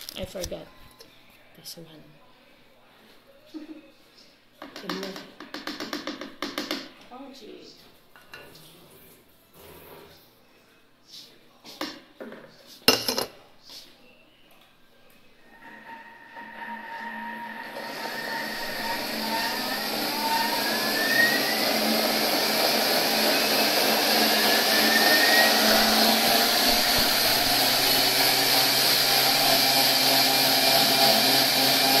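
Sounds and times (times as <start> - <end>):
kitchen machine motor whine: 15.4 - 32.0.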